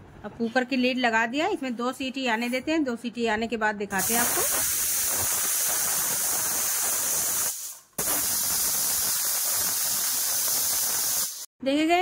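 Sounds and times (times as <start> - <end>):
pressure cooker hissing steam: 4.0 - 11.5.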